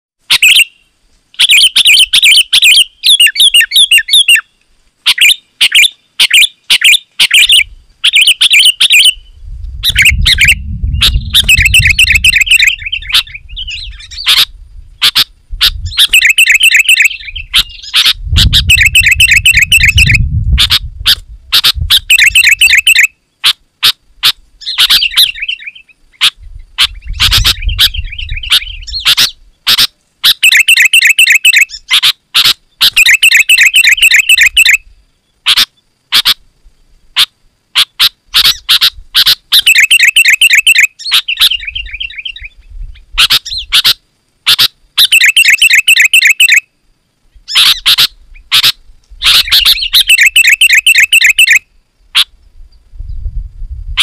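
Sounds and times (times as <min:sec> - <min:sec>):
bird chattering calls: 0:00.3 - 0:00.8, 0:01.4 - 0:34.8, 0:35.4 - 0:36.4, 0:37.1 - 0:46.6, 0:47.4 - 0:52.4
low rumble: 0:09.2 - 0:12.0, 0:19.9 - 0:22.0, 0:52.7 - 0:54.0.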